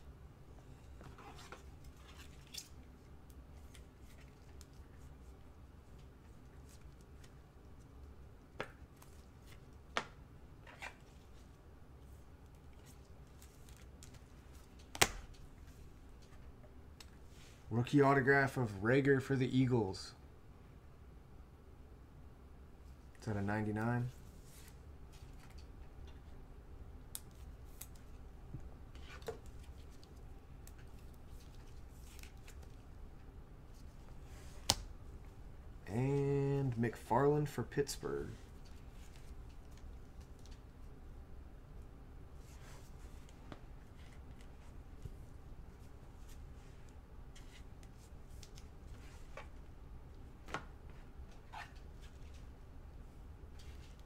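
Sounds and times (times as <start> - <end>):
low steady hum: 0.0 - 54.0.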